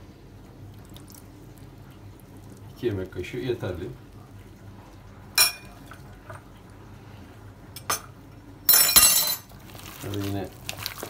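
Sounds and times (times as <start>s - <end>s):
metal spoon clinking against dishes: 5.4s - 5.7s, 8.7s - 9.5s.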